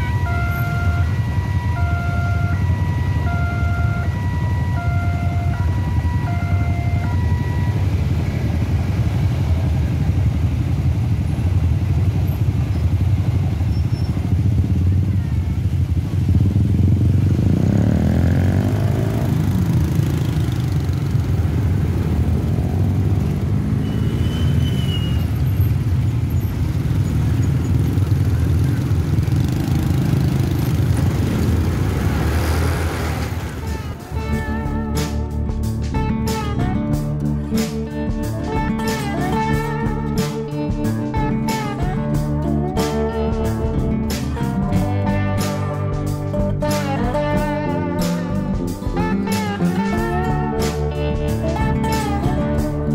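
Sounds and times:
two-tone electronic warning alarm: 0.0s - 8.1s
motorcycle engines revving: 0.0s - 52.9s
road and wind noise: 0.0s - 52.9s.

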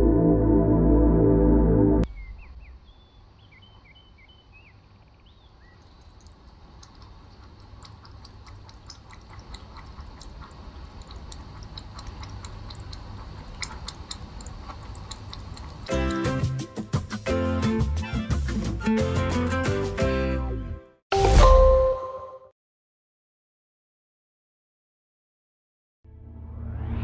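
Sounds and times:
faint rising chirps: 2.1s - 6.4s
low room hum: 2.1s - 16.2s
cat mouth clicks: 6.0s - 16.7s.

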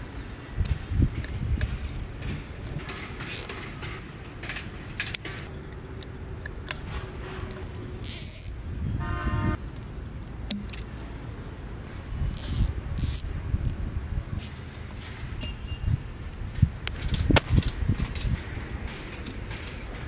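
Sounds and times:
short horn toot: 9.0s - 9.6s.

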